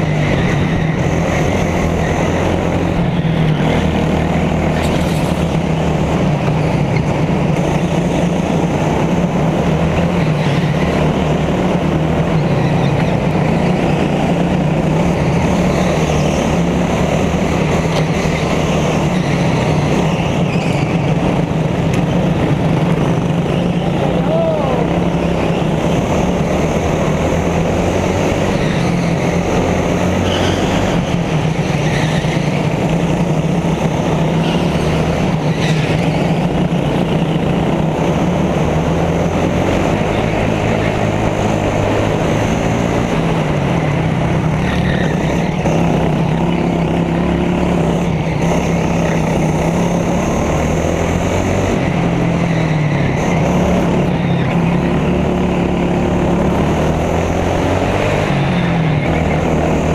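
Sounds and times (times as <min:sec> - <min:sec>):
go-kart engine running hard: 0:00.0 - 0:59.9.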